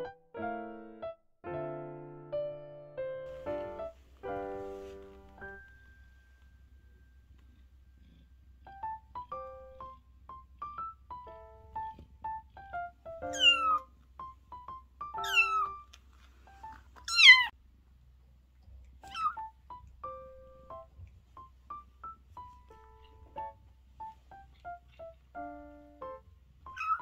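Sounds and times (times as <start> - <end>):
light piano music: 0.0 - 17.6, 19.0 - 27.0
kitten mewing: 13.2 - 13.9, 15.2 - 15.9, 17.0 - 17.5, 19.0 - 19.5, 26.7 - 27.0.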